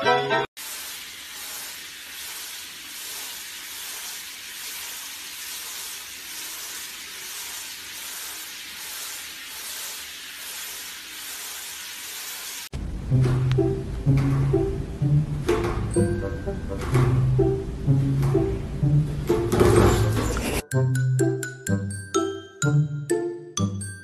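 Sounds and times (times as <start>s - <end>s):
music: 0.0s - 0.5s, 12.9s - 24.0s
shower head spraying water: 0.6s - 14.8s.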